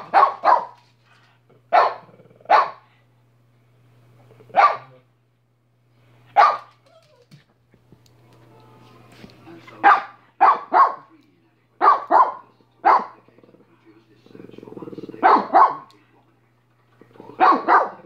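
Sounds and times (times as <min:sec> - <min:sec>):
small dog barking: 0:00.0 - 0:00.8, 0:01.7 - 0:02.8, 0:04.5 - 0:05.0, 0:06.4 - 0:07.1, 0:09.8 - 0:11.1, 0:11.8 - 0:13.2, 0:15.2 - 0:15.9, 0:17.4 - 0:18.0.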